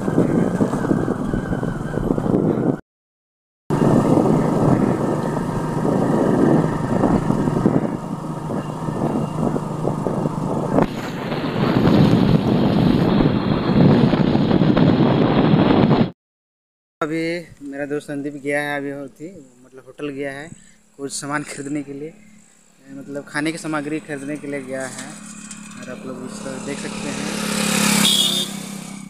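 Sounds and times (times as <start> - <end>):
wind rushing on microphone: 0.0 - 2.8, 3.7 - 16.2
motorcycle engine running: 3.7 - 15.2, 21.1 - 29.0.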